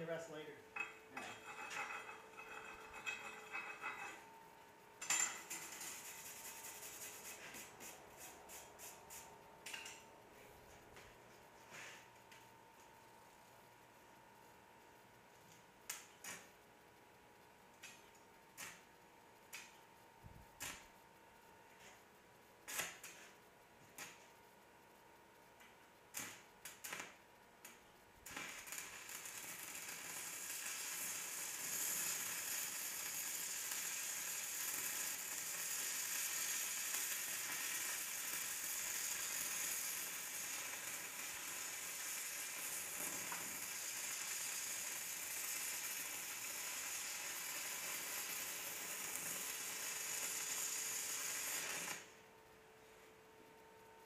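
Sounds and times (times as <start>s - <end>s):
welding arc buzzing: 5.0s - 10.0s, 26.1s - 52.3s.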